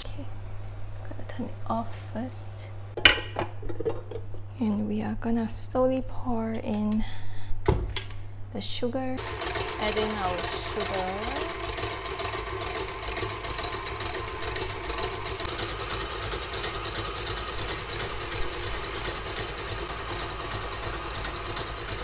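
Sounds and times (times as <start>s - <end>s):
stand mixer whisking: 9.2s - 22.0s.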